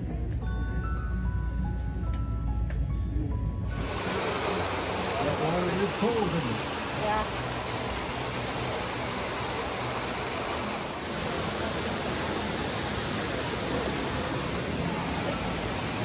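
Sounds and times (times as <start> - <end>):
water rushing over spillway: 3.7 - 16.0.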